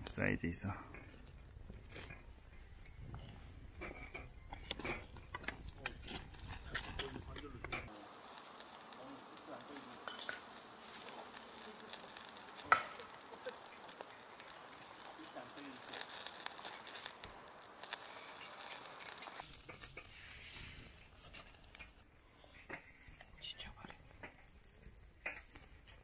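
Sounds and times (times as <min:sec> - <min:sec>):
meat sizzling on a grill: 0:05.7 - 0:22.0.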